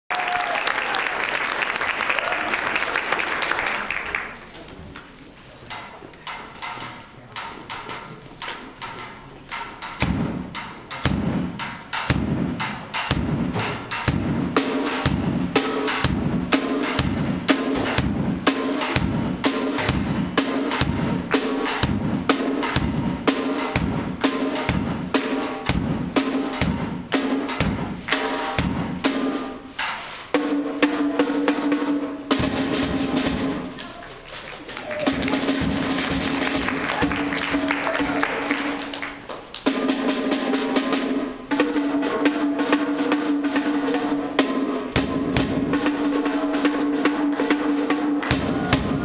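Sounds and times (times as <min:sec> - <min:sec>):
bass drum strokes: 0:05.7 - 0:33.8
snare and cymbal hits: 0:05.7 - 0:33.8, 0:34.9 - 0:49.0.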